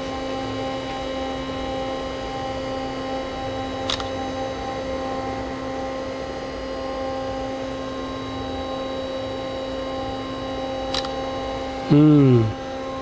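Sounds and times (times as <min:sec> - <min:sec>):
computer cooling fans humming: 0:00.0 - 0:13.0
man's brief vocal sound: 0:11.9 - 0:12.6.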